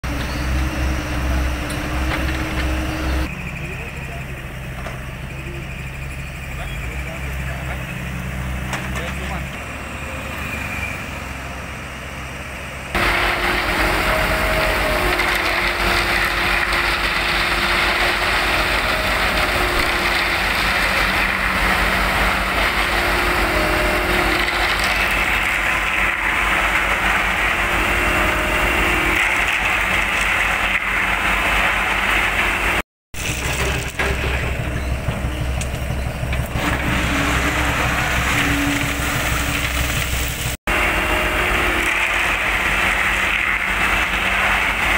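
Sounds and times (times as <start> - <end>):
diesel engines running: 0.0 - 44.9
loud mechanical din: 12.9 - 44.9.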